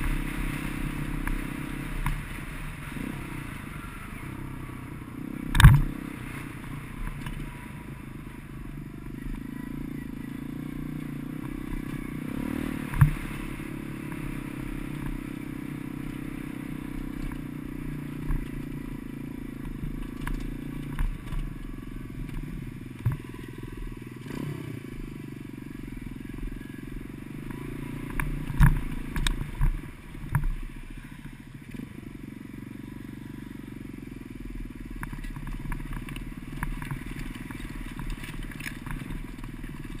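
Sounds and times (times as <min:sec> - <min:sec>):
motorcycle engine running: 0:00.0 - 0:40.0.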